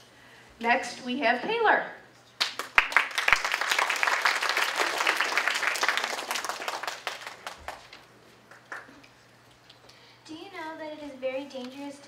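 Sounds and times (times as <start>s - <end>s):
audience applauding: 2.4s - 9.1s.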